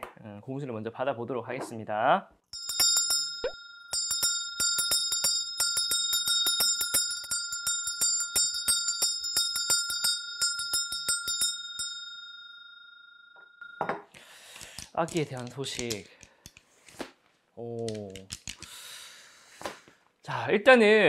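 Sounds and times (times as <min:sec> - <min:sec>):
metal handbell shaken: 0:02.6 - 0:12.8.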